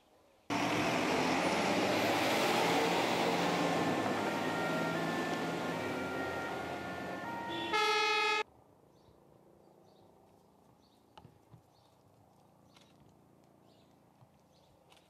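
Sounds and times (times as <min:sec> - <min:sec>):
loud horn-like tone: 0:03.8 - 0:08.4.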